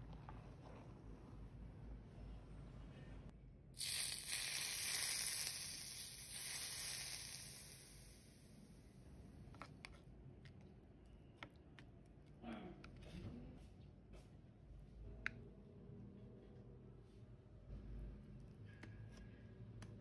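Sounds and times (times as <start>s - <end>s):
hot oil sizzling: 3.8s - 8.6s.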